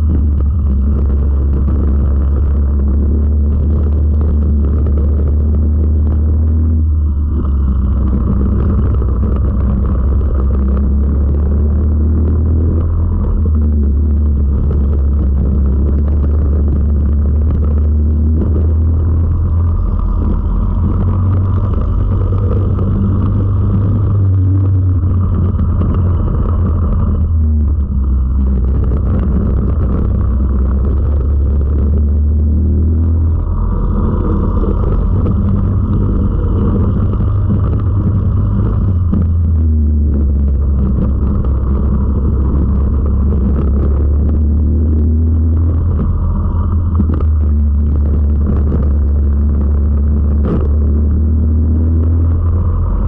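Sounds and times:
kart engine running hard: 0.0 - 53.0.

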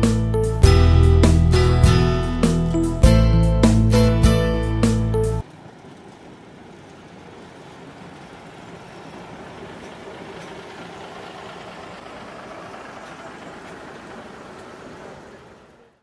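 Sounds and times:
diesel railcar engine running: 0.0 - 16.0
train wheels rolling on rails: 5.4 - 15.9.

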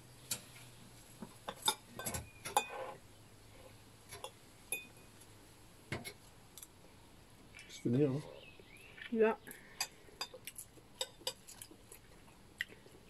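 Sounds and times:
cutlery clinking on plate: 1.5 - 2.9.

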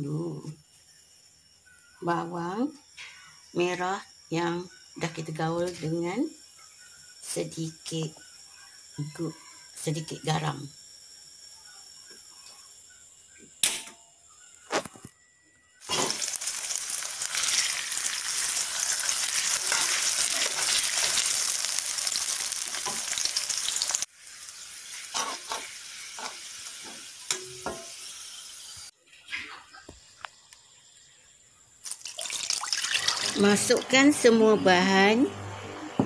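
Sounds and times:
onions sizzling in hot oil: 0.9 - 13.3, 15.8 - 28.9, 31.8 - 34.3
metal spatula stirring in wok: 15.8 - 24.0, 25.1 - 26.4.

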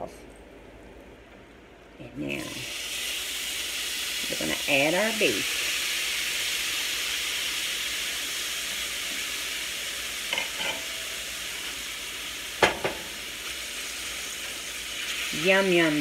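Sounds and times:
meat sizzling in hot oil: 2.3 - 16.0
spoon knocking on cookware: 12.6 - 13.1.

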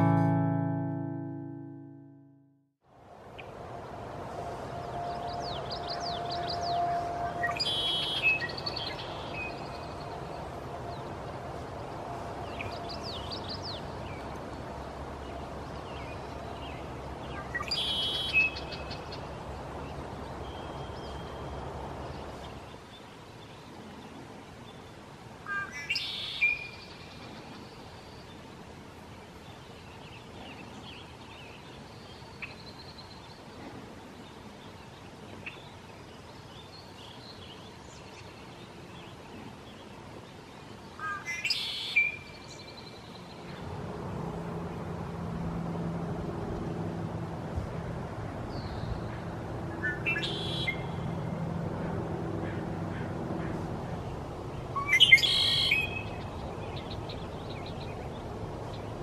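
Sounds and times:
low steady hum: 0.0 - 2.5
blackbirds singing trilled songs: 49.8 - 51.0, 54.5 - 59.0
soft bird chirps and calls: 54.6 - 59.0.

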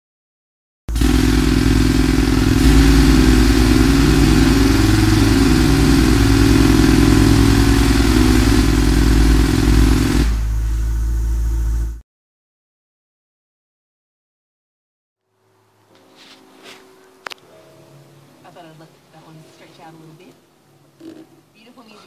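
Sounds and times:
engine-like drone sound effect: 0.9 - 12.0.

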